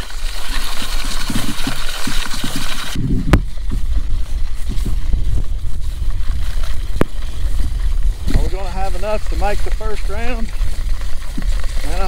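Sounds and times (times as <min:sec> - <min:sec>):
wind rumble: 0:00.0 - 0:12.0
microphone handling noise: 0:01.2 - 0:10.6.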